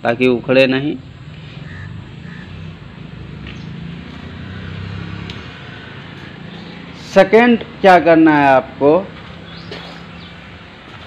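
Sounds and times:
low mechanical rumble: 0:00.4 - 0:04.2.

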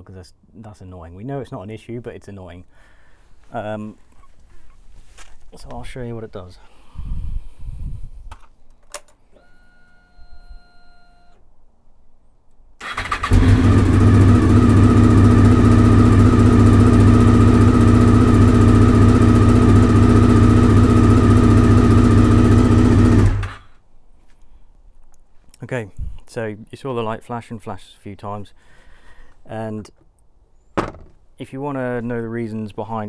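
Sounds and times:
ignition whine: 0:12.8 - 0:23.6
motorcycle engine idling: 0:12.8 - 0:23.6.

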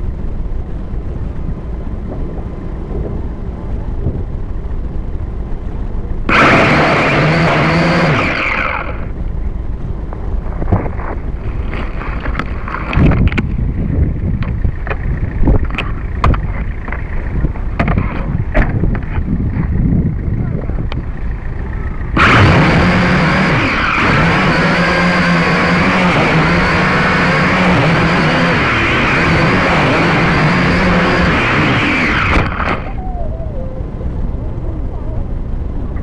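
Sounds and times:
steady low rumble: 0:00.0 - 0:36.0
drone motors buzzing: 0:05.5 - 0:36.0
rustling in grass: 0:10.4 - 0:13.2.

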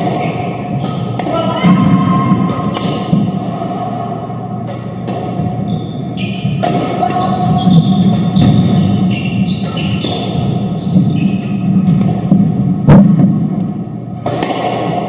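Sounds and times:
sneakers squeaking on hardwood: 0:00.0 - 0:03.2, 0:05.4 - 0:11.9
squash ball knocks: 0:00.0 - 0:03.6, 0:06.5 - 0:08.8, 0:11.4 - 0:13.6, 0:14.2 - 0:15.0.

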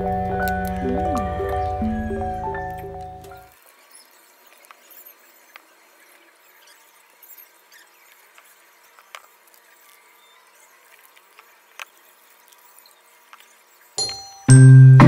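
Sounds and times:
bright chiming note: 0:14.0 - 0:15.0.

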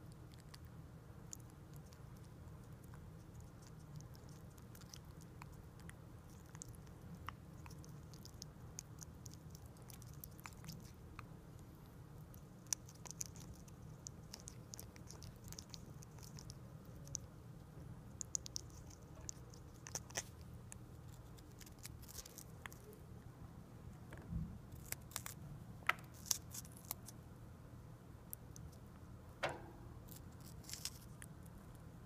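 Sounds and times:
wet crunches of chewing: 0:00.0 - 0:17.3, 0:18.1 - 0:22.9, 0:24.7 - 0:25.4, 0:26.1 - 0:27.2, 0:30.1 - 0:31.8
low thump: 0:29.4 - 0:30.0.

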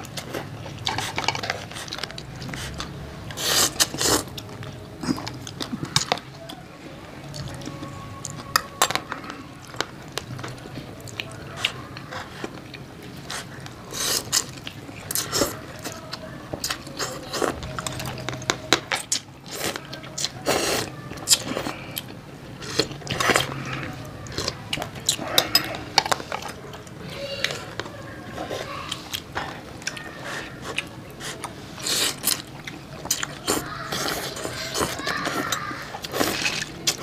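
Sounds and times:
utensils clinking on bowls: 0:24.3 - 0:26.6, 0:33.9 - 0:37.0.

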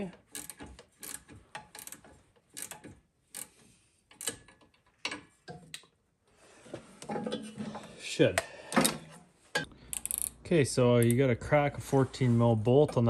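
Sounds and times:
ratchet clicking: 0:00.3 - 0:05.0, 0:09.9 - 0:10.4.

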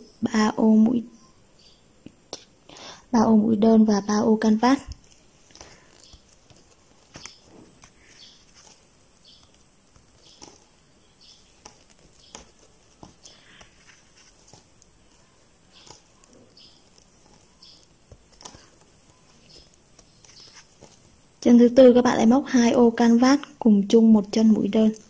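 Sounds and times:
crochet hook and yarn clicking: 0:04.7 - 0:21.5.

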